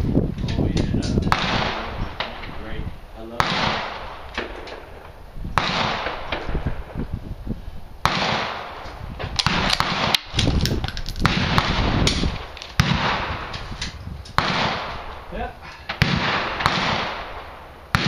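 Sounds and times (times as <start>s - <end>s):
loud gunshots with echo: 1.3s - 2.5s, 3.3s - 7.0s, 8.0s - 8.8s, 9.4s - 10.3s, 11.2s - 13.5s, 14.4s - 15.3s, 15.9s - 18.0s.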